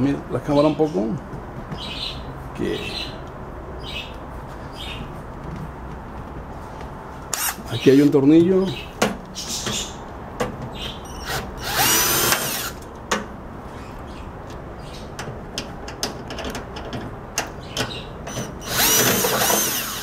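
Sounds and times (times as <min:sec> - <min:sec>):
cordless drill backing out screw: 0:11.2 - 0:12.8, 0:18.3 - 0:20.0.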